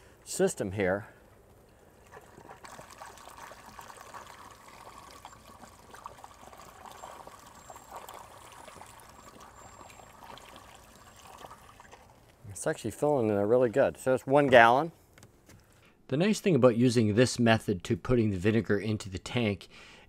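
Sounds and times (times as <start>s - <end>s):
liquid trickling into funnel: 2.0s - 12.4s.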